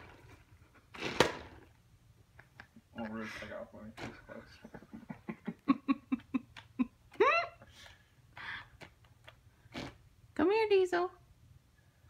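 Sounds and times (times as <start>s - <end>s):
woman laughing: 4.7s - 7.7s.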